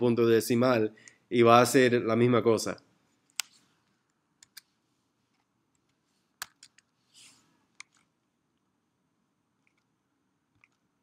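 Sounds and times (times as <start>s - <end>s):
keyboard and mouse clicks: 4.4s - 4.7s, 5.3s - 6.9s, 7.8s - 8.1s, 9.6s - 9.9s, 10.5s - 10.9s.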